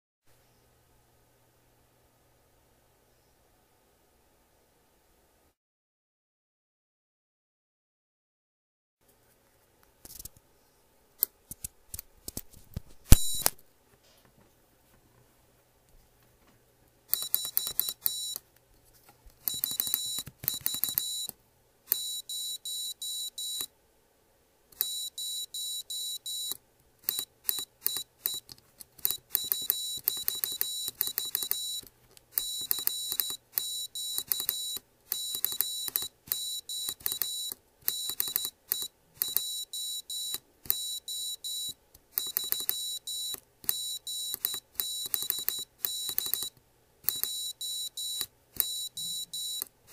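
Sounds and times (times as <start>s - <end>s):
switch clicks: 13.1s - 13.6s
high-pitched morse code beeps: 17.1s - 18.4s, 19.4s - 21.3s, 21.9s - 23.7s, 24.8s - 28.4s, 29.0s - 31.8s, 32.4s - 46.5s, 47.1s - 49.7s.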